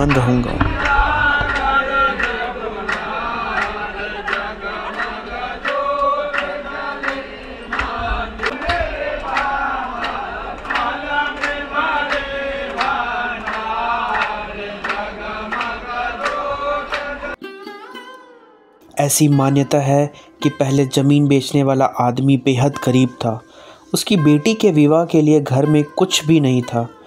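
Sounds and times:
group chanting: 0:00.0 - 0:17.4
hand claps: 0:00.0 - 0:17.4.

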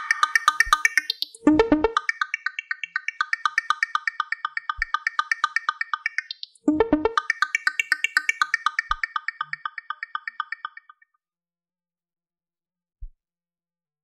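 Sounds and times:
synthesizer blips: 0:00.0 - 0:11.0.

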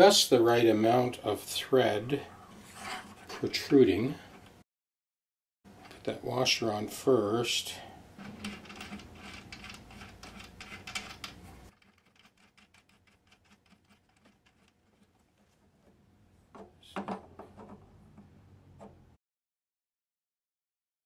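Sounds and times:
small metal clicks and scratches: 0:08.2 - 0:15.6.

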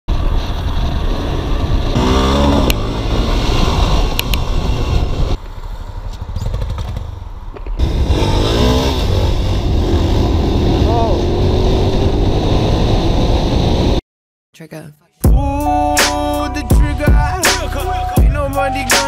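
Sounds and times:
motorcycle engines revving hard: 0:00.1 - 0:05.4, 0:07.8 - 0:14.0
wind rushing over microphone: 0:00.1 - 0:05.5, 0:07.8 - 0:14.0.

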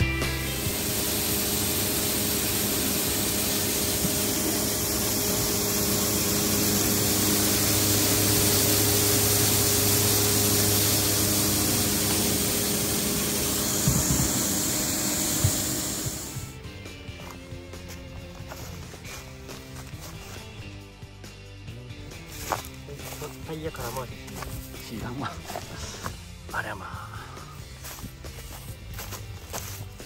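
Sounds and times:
spreader rushing hiss: 0:00.0 - 0:16.6
tractor diesel engine running: 0:00.0 - 0:30.0.

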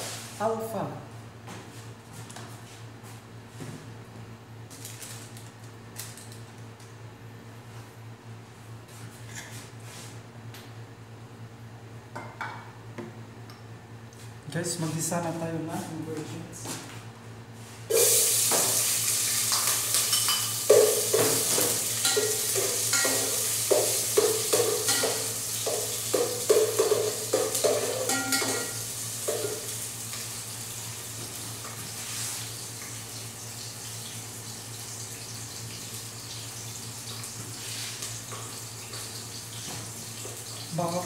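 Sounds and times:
food sizzling in hot oil: 0:17.9 - 0:41.0.

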